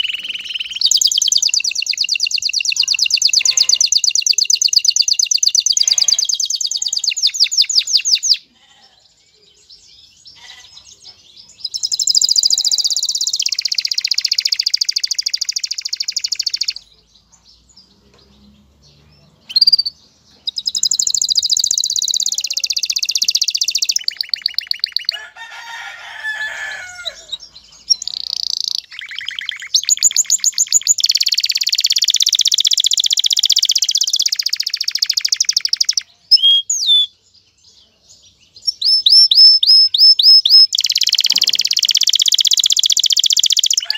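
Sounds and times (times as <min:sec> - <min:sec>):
canary warbling: 0:00.0 - 0:08.8, 0:19.5 - 0:37.1, 0:38.8 - 0:43.9
canary singing trills: 0:00.0 - 0:43.9.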